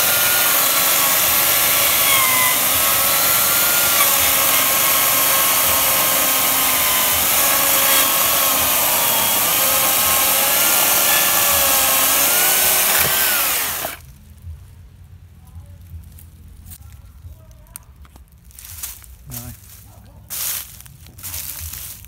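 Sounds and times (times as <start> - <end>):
electric chainsaw cutting log: 0.0 - 14.0.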